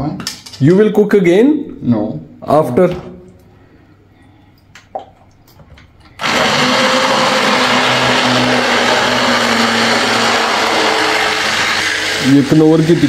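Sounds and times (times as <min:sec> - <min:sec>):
stick blender running: 0:06.2 - 0:13.0.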